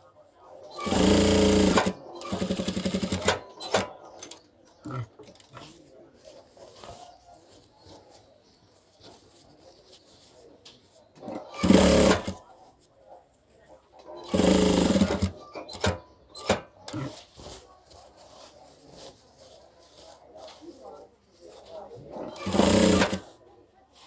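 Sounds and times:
sewing machine running: 0.8 - 3.4, 11.6 - 12.4, 14.3 - 16.0, 22.4 - 23.2.

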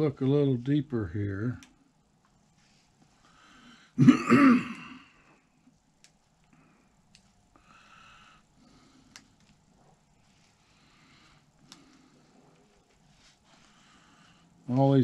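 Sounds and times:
small clicks: 6.0 - 7.4.

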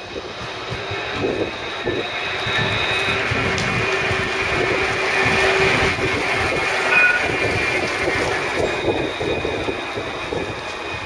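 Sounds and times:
steel wheels rumbling on rail: 0.0 - 11.0
tram electric drive tone: 0.0 - 11.0
brief high tone: 6.9 - 7.4.

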